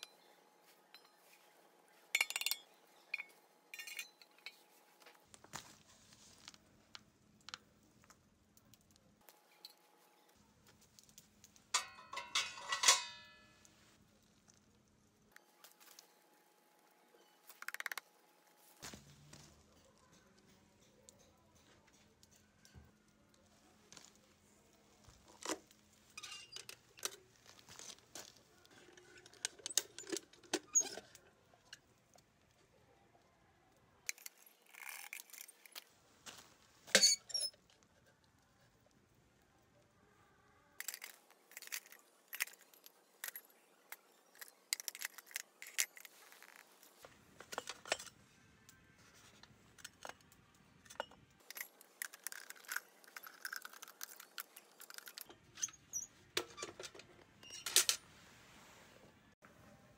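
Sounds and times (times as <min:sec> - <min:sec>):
metal stove parts clinking: 0:02.2 - 0:04.7, 0:11.7 - 0:13.6, 0:36.9 - 0:37.5, 0:47.4 - 0:48.2
metal clatter: 0:11.8 - 0:13.5.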